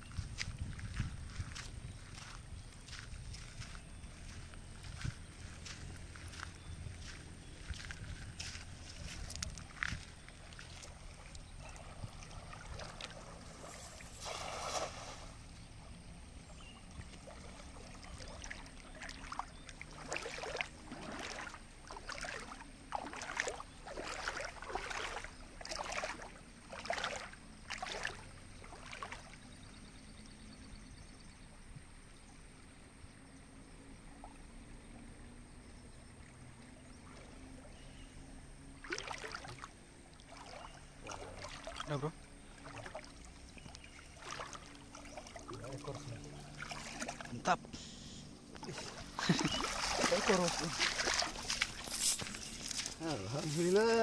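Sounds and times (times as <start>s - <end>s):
faint flowing water: 0.0s - 54.0s
water splashing: 4.1s - 15.5s, 16.5s - 29.6s, 36.2s - 47.7s, 48.4s - 54.0s.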